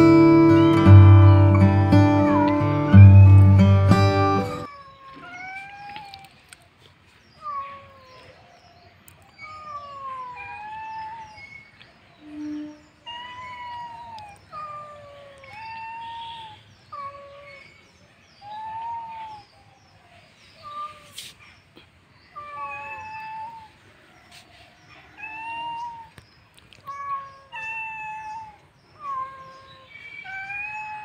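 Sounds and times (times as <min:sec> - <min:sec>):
cat meowing: 0:00.0 - 0:06.4, 0:07.4 - 0:08.4, 0:09.4 - 0:11.4, 0:12.3 - 0:17.6, 0:22.4 - 0:23.8, 0:25.0 - 0:26.2, 0:26.8 - 0:31.0.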